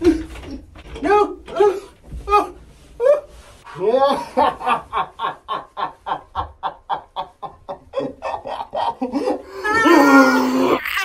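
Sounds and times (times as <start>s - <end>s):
person laughing in rapid bursts: 3.7s - 10.1s
person crying out loudly: 9.5s - 11.0s.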